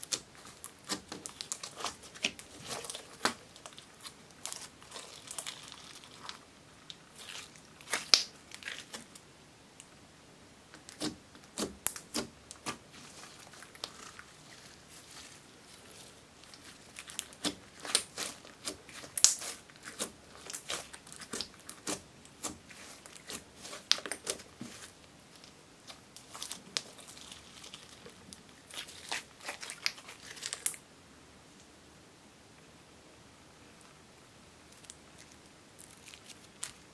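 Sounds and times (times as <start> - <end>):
slime crackling and popping: 0.0 - 9.2, 10.7 - 30.8.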